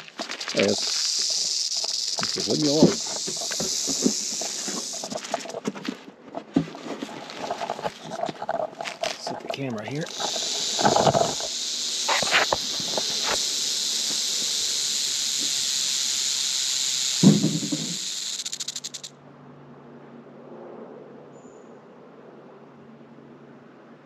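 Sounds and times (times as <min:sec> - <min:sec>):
rattlesnake tail rattle buzzing: 0:00.0 - 0:05.9, 0:06.8 - 0:19.1.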